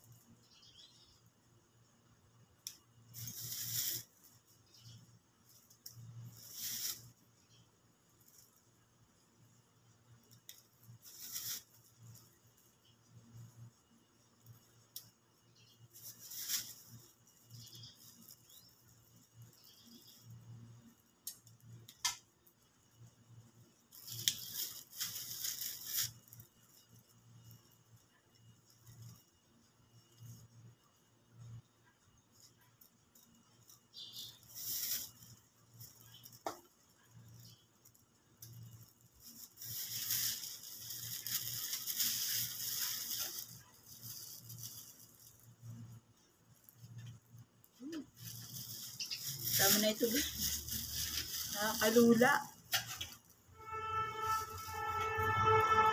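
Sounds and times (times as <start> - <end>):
plastic bag rustling: 3.0 - 7.4, 10.2 - 13.7, 15.8 - 20.6, 23.3 - 29.6, 33.4 - 55.9
palm fronds rustling: 3.1 - 4.6, 5.4 - 7.3, 10.9 - 12.7, 15.9 - 20.0, 23.9 - 28.0, 33.2 - 37.4, 38.6 - 46.0, 48.1 - 55.9.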